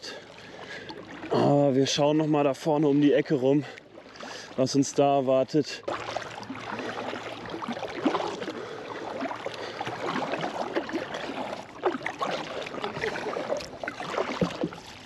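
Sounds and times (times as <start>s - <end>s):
paddle splashing water: 0.0s - 15.0s
water lapping against hull: 0.0s - 15.0s.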